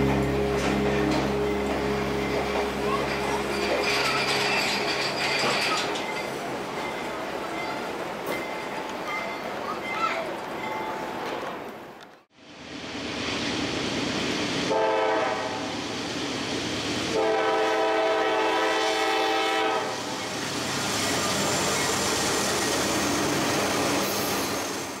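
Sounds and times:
moving train noise: 0.0s - 25.0s
train horn blasts: 14.7s - 15.7s, 17.1s - 20.0s.

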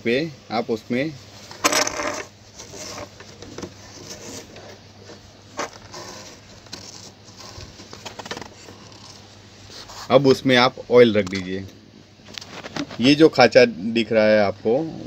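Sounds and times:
cloth rubbing on metal: 1.3s - 10.6s.

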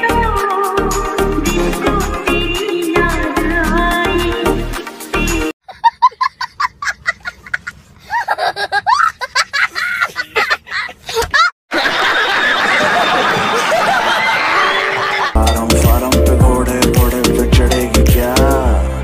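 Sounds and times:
small child laughing: 5.6s - 11.5s
crowd laughing: 5.7s - 15.4s.

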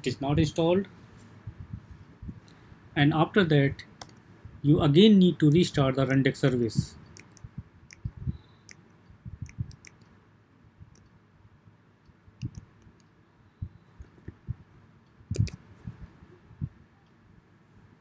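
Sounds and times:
keyboard typing clicks: 7.1s - 10.1s, 12.4s - 13.1s, 15.3s - 15.6s.

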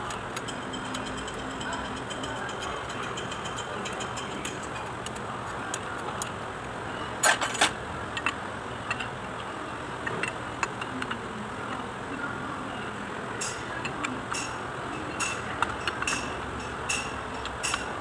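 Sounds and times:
wrench clinking on metal: 0.0s - 5.2s, 13.4s - 18.0s
sharp metal clanks: 13.4s - 18.0s.

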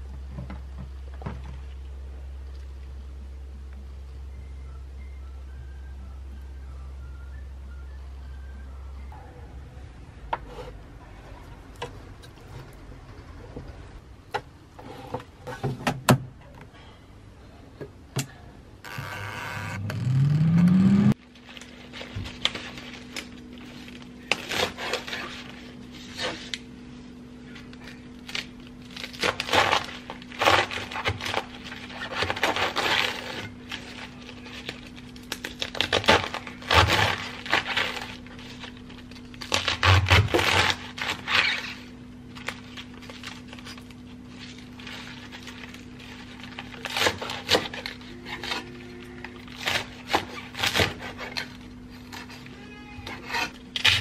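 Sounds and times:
steady low hum: 0.0s - 54.0s
rising whine: 18.8s - 21.2s.

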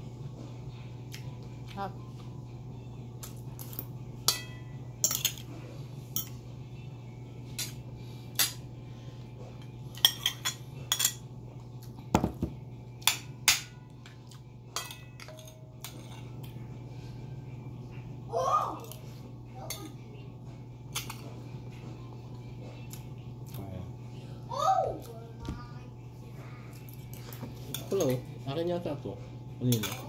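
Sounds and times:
steady low hum: 0.0s - 30.0s
cutlery clinking on plates: 9.9s - 11.2s, 29.7s - 30.0s.

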